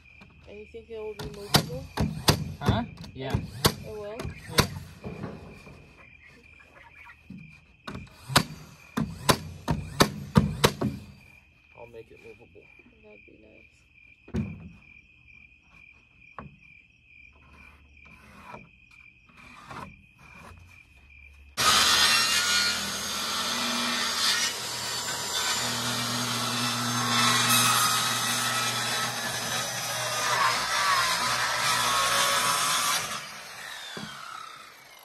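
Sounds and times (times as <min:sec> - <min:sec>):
crickets chirring: 0:00.0 - 0:21.6
sharp knocks and rustles: 0:01.3 - 0:11.2
power saw cutting wood: 0:21.6 - 0:35.0.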